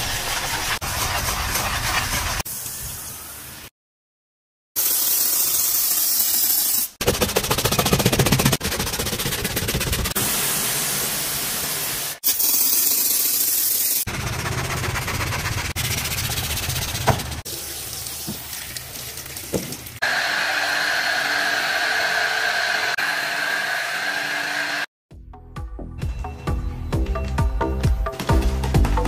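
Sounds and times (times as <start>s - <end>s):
pressure washer spray hissing: 4.8s - 6.9s, 10.2s - 14.1s.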